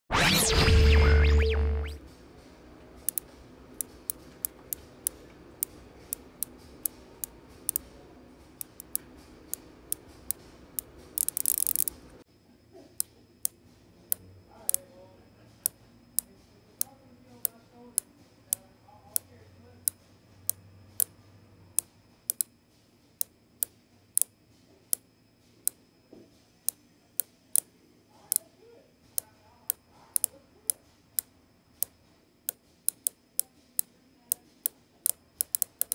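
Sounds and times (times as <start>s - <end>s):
bicycle freehub ratcheting clicks: 3.1s - 7.9s, 8.6s - 12.0s, 21.8s - 22.5s, 32.5s - 33.5s, 34.3s - 35.9s.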